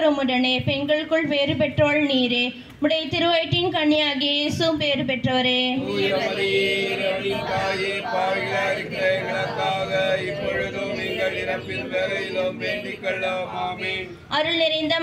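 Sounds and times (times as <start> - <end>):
congregation reciting prayer in unison: 5.8 - 14.3.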